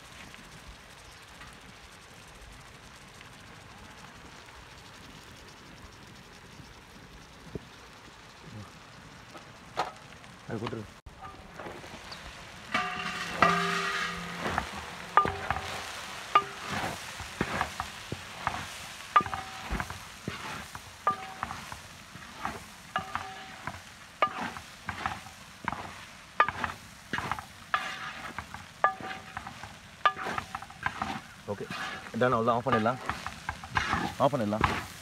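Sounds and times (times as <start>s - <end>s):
frying sizzle: 0.0s - 35.0s
metal ladle clanking on pan: 12.7s - 17.8s, 19.2s - 21.6s, 22.5s - 34.8s.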